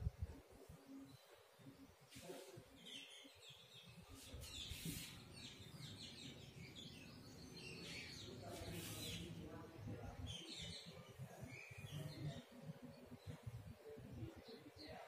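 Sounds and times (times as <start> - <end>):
marker strokes on whiteboard: 4.1 - 5.2, 8.5 - 9.3
short hissy scrapes: 4.4 - 5.2.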